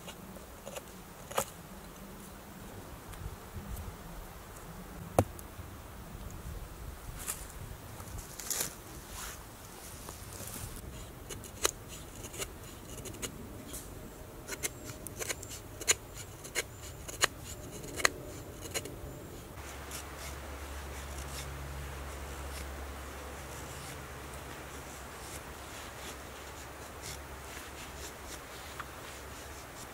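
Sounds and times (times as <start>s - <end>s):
low hum with faint hiss: 0.0s - 29.9s
knife shaving wood: 19.6s - 29.9s.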